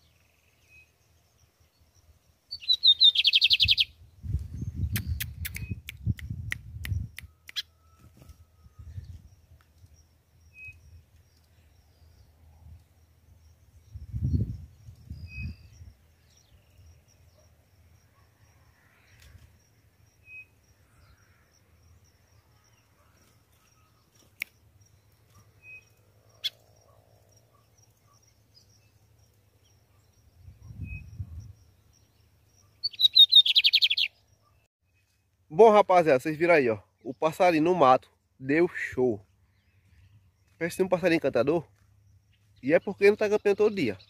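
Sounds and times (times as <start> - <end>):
faint bird chirps: 0.0 - 35.2
bird singing loud rapid song: 0.0 - 44.0
sharp clicks: 4.9 - 7.7.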